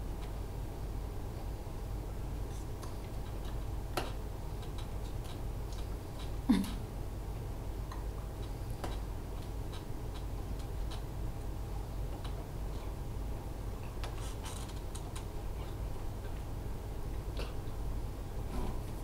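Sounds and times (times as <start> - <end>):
steady low hum: 0.0 - 19.0
faint clicks and taps: 2.8 - 6.4, 7.8 - 11.1, 12.1 - 12.9.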